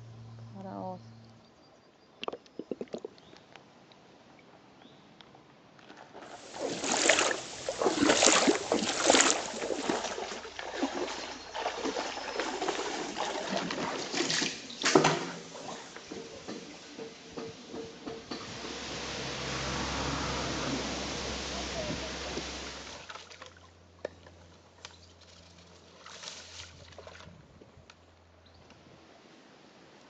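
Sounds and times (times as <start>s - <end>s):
stream water splashing: 6.0s - 24.0s, 25.4s - 27.3s.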